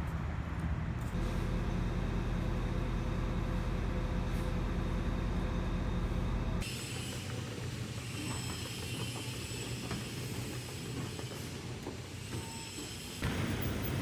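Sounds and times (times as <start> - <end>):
bus engine rumble: 0.0 - 8.2.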